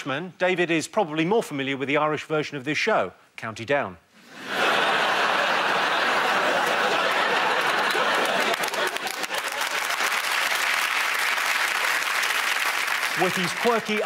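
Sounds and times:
audience applauding: 5.4 - 14.0.

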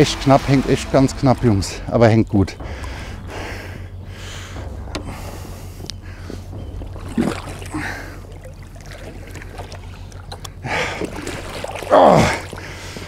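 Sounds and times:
steady low hum: 0.0 - 13.0
fish thrashing and splashing: 6.2 - 13.0.

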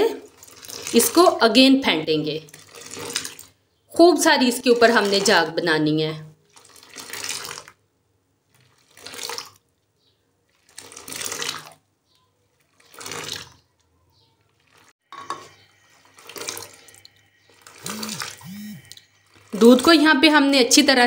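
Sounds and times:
milk splashing into clay pot: 0.2 - 1.5, 2.3 - 3.6, 4.5 - 5.6, 6.5 - 7.8, 8.5 - 9.7, 10.5 - 11.8, 12.6 - 13.8, 16.0 - 17.8.

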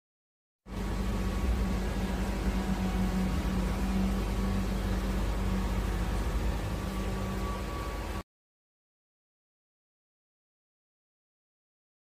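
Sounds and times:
clothes dryer fan humming: 0.7 - 8.2.

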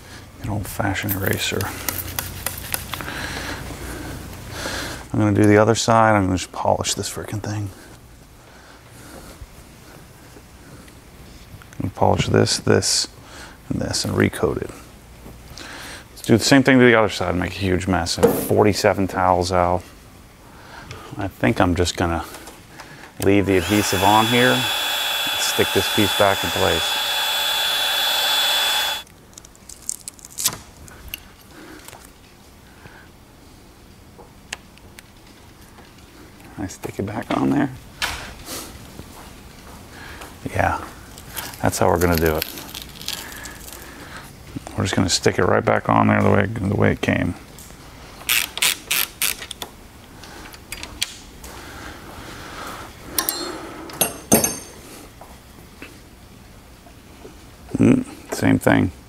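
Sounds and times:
heat gun fan with whine: 22.2 - 29.1.

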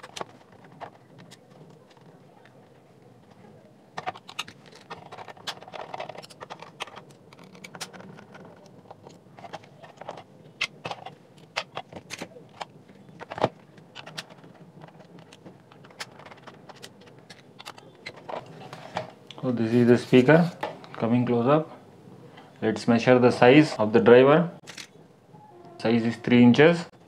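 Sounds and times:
plastic housing clicking and scraping: 0.0 - 2.5, 4.0 - 19.4.

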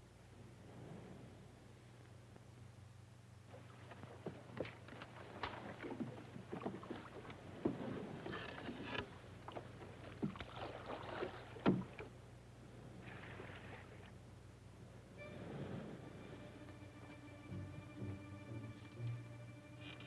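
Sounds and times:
water splashes: 3.5 - 12.2, 13.0 - 14.2.

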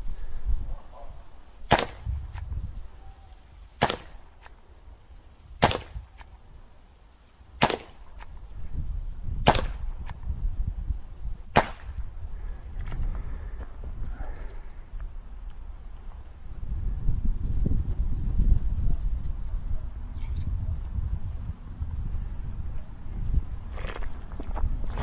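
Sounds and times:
air revolver shots: 1.7 - 2.2, 3.8 - 4.5, 5.6 - 6.3, 7.6 - 8.3, 9.4 - 10.0, 11.5 - 12.0.

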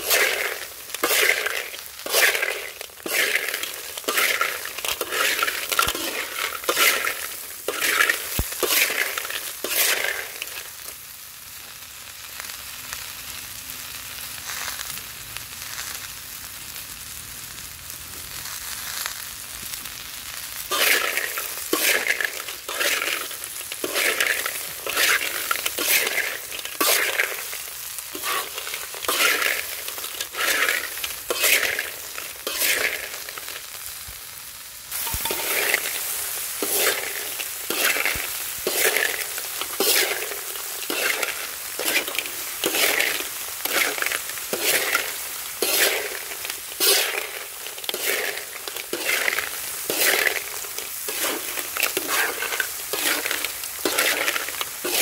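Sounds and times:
metal spoon scraping shells in pan: 0.0 - 10.9, 20.6 - 33.8, 34.9 - 55.0
steady sizzle: 0.0 - 55.0.

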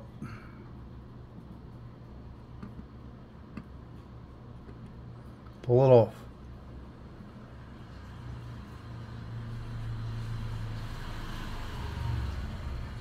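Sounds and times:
passing vehicle engine rumble: 8.0 - 13.0.

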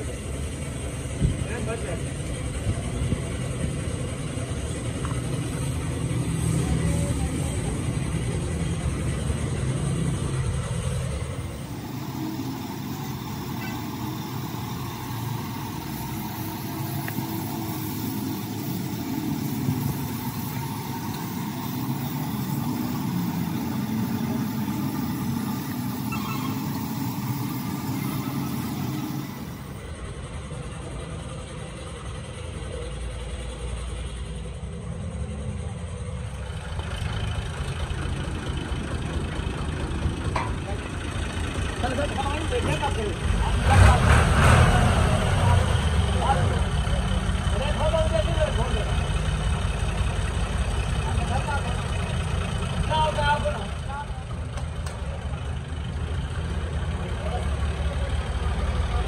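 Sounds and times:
motor rumbling low: 0.0 - 59.0
paint spray gun hissing: 11.5 - 29.8.

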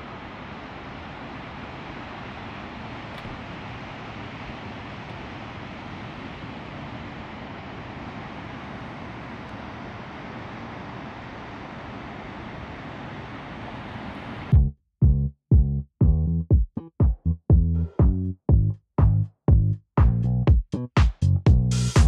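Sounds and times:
ocean surf: 0.0 - 14.5
wind: 0.0 - 14.5.

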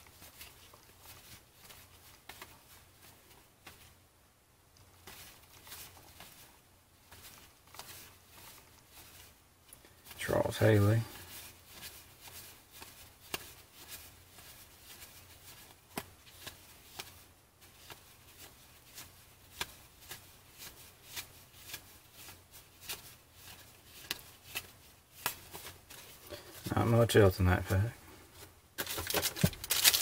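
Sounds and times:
trading cards flipped by hand: 0.1 - 3.9, 11.7 - 26.7, 28.8 - 30.0.

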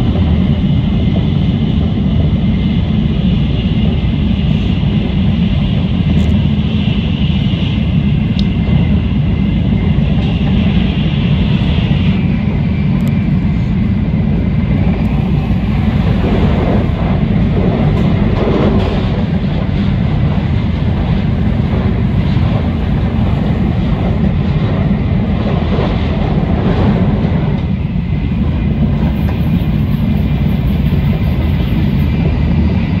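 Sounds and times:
train running gear rumble: 0.0 - 33.0.

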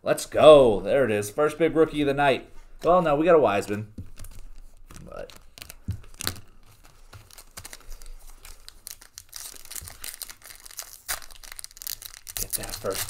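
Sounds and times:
foil wrapper crinkling and tearing: 4.1 - 13.0.

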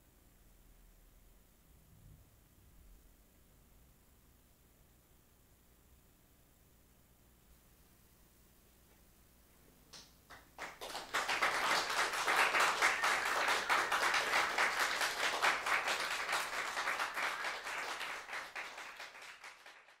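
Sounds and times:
audience applauding: 10.3 - 20.0.

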